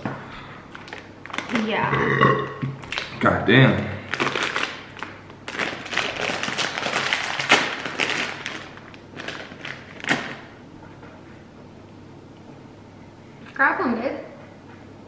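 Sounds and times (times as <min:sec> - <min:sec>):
plastic bag crinkling: 0:00.7 - 0:01.9, 0:02.8 - 0:03.2, 0:04.0 - 0:10.6.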